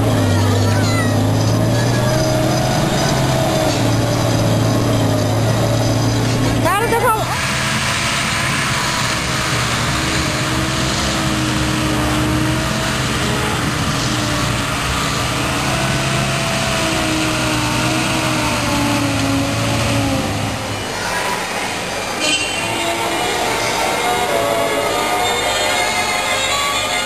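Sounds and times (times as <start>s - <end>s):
truck engine running: 0.0s - 27.0s.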